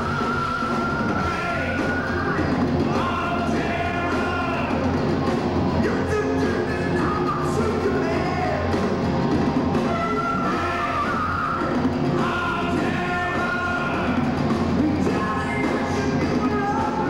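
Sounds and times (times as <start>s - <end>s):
person singing: 0.0s - 4.9s, 9.8s - 17.0s
heavy metal band playing live: 0.0s - 17.0s.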